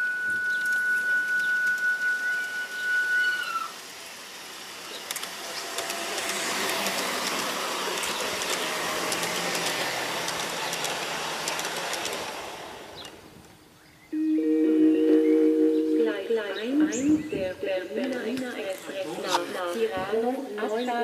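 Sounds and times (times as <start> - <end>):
model train wheels clicking on rails: 0.0 - 13.6.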